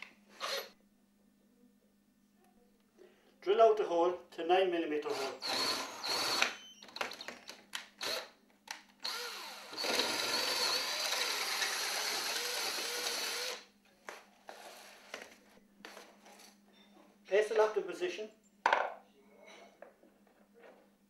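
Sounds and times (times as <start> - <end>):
cordless drill boring into metal: 0.4 - 0.7, 5.1 - 6.6, 8.0 - 8.3, 9.0 - 13.6.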